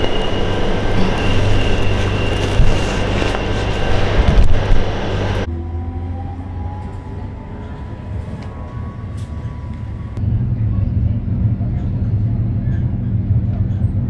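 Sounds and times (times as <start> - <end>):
metro train rumble and rattle: 0.0 - 14.0.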